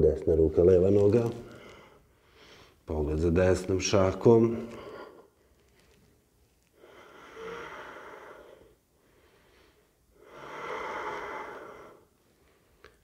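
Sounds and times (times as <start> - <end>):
man breathing through nose: 1.5 - 2.8, 6.7 - 13.0.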